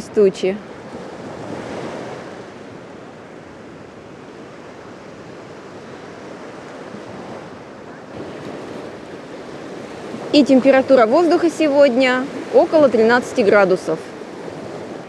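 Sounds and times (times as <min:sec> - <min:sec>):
waves washing up a sandy shore: 0:00.0 - 0:15.0.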